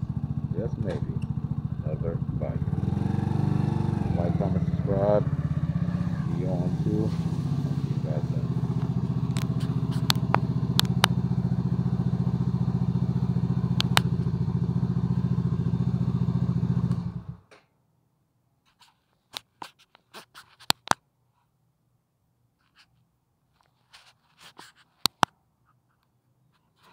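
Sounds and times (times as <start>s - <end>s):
motorcycle engine idling: 0.0s - 17.4s.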